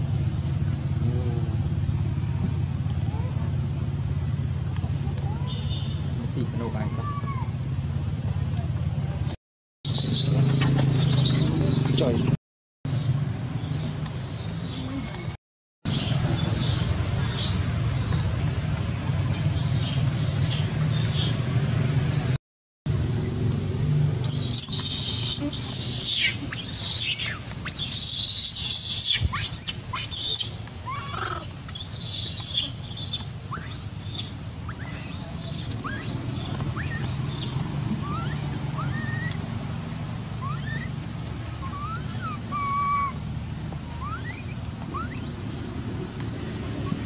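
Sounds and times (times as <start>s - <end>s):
high-pitched whine: 0.0s - 15.3s, 15.9s - 47.0s
baby monkey screaming: 6.6s - 7.6s, 9.9s - 11.8s, 24.2s - 39.6s, 40.3s - 43.2s, 43.8s - 45.8s.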